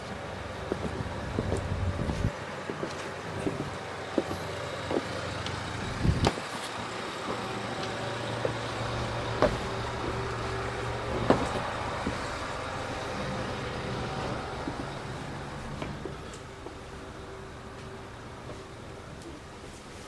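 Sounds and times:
footsteps on boat deck: 0.0s - 12.6s, 14.6s - 16.9s.

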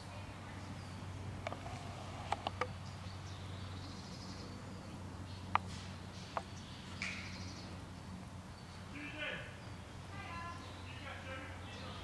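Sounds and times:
faint birdsong: 0.0s - 12.0s.

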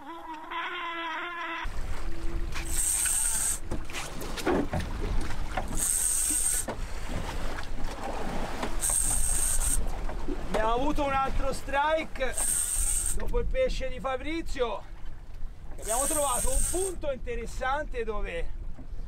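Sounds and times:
fishing reel whirring: 2.5s - 3.7s, 5.7s - 6.7s, 8.8s - 9.9s, 12.3s - 13.2s, 15.8s - 17.0s.

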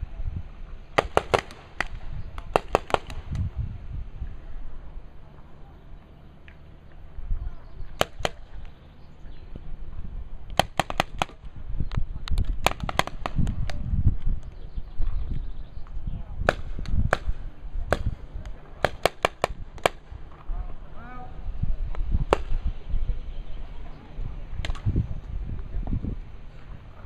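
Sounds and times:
paintball markers firing: 1.0s - 3.5s, 8.0s - 8.5s, 10.5s - 11.5s, 12.3s - 13.8s, 16.4s - 20.1s.

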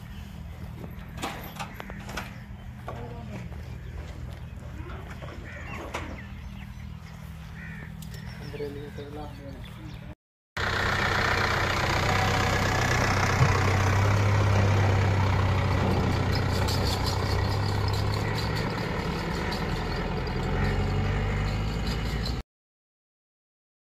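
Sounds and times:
pickup truck engine humming: 10.6s - 22.4s.

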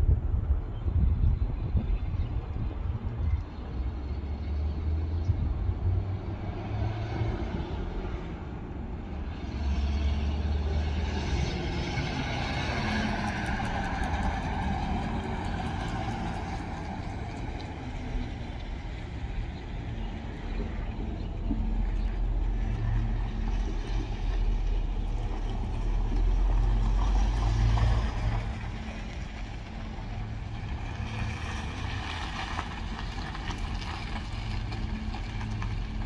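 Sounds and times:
pickup truck driving past: 9.4s - 19.4s, 20.1s - 36.0s.

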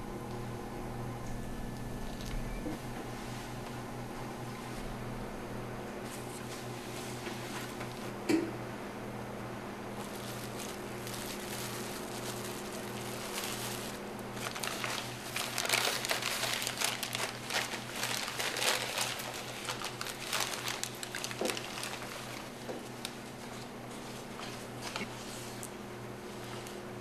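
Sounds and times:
steady low hum: 0.0s - 27.0s
paper bag crinkling: 10.0s - 25.6s.

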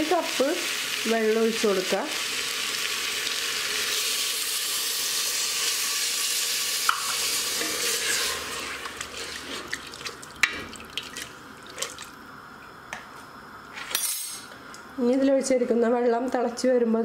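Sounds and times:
water sizzling in hot pot: 0.0s - 12.4s.

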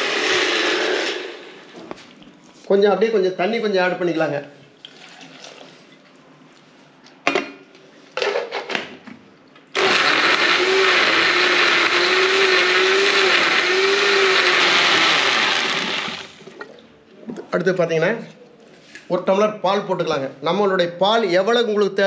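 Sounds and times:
blender motor whirring: 0.0s - 1.6s, 9.8s - 16.4s.

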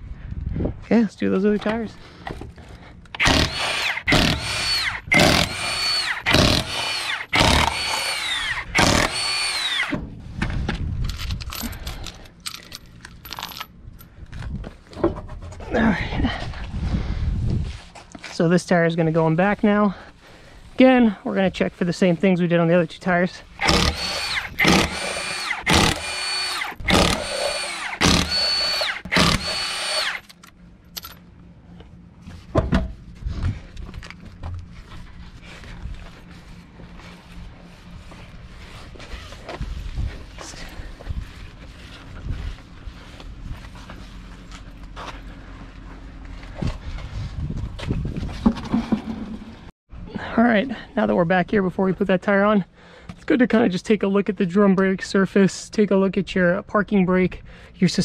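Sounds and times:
cordless impact wrench whining: 3.1s - 10.0s, 23.6s - 30.5s.

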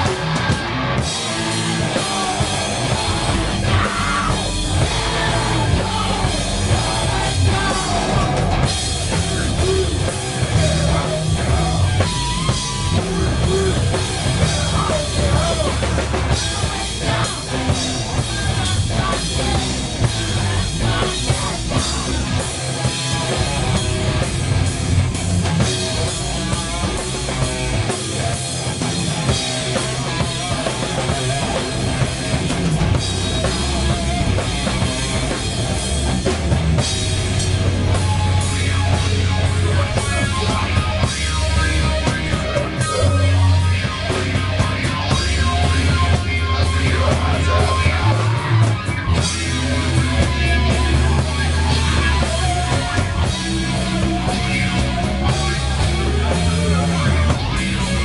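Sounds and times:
metal band playing heavy riff: 0.0s - 58.0s.

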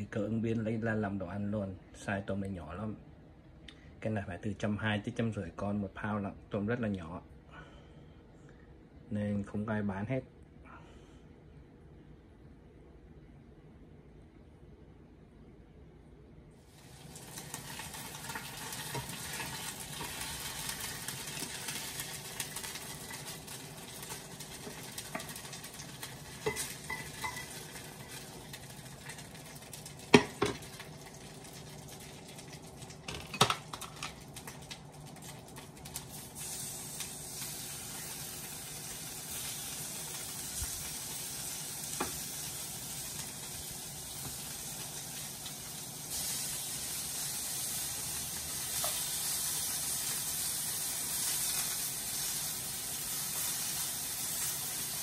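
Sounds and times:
oil sizzling in frying pan: 16.6s - 55.0s
utensils clattering against pans: 26.4s - 27.9s.

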